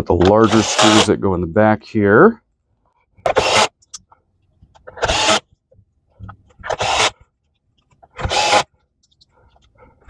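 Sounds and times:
cordless drill driving screws: 0.2 - 1.1, 3.3 - 3.7, 5.0 - 5.4, 6.6 - 7.2, 8.2 - 8.7.

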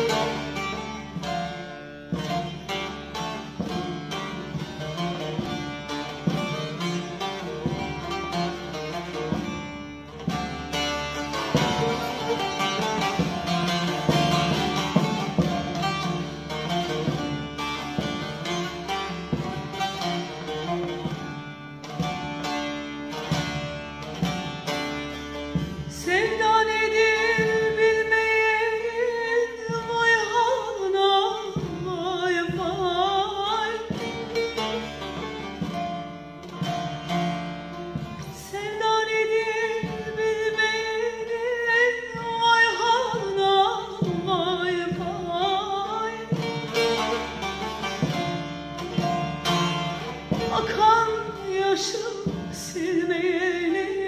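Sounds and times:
long-necked lute fast picking: 0.0 - 54.0
woman singing: 25.8 - 34.2, 38.2 - 46.6, 50.2 - 54.0.

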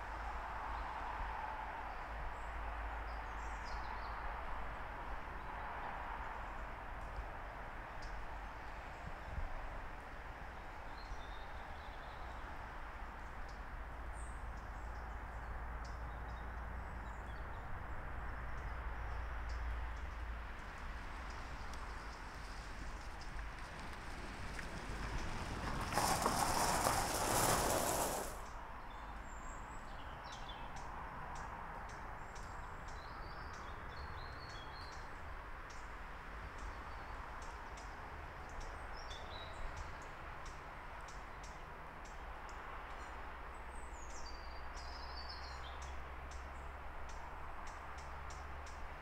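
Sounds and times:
loud rushing noise: 26.0 - 28.4.

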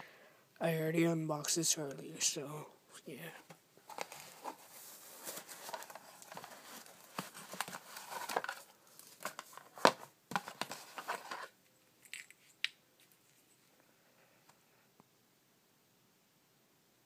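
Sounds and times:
cardboard and foam rustling: 3.4 - 11.6.

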